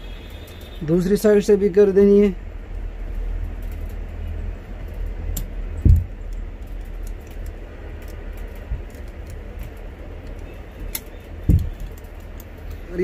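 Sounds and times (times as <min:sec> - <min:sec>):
steady low hum: 0:00.0 - 0:13.0
dull thump: 0:05.8 - 0:06.2, 0:11.5 - 0:11.9.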